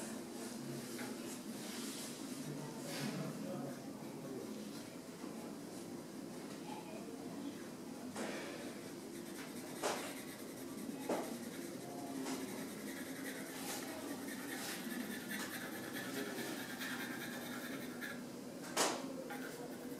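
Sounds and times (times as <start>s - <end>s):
pencils scratching on paper: 9.0s - 18.2s, 19.3s - 19.9s.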